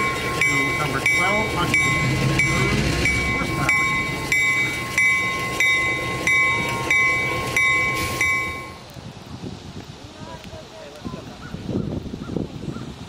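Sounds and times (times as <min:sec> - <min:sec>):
locomotive bell ringing: 0:00.0 - 0:08.9.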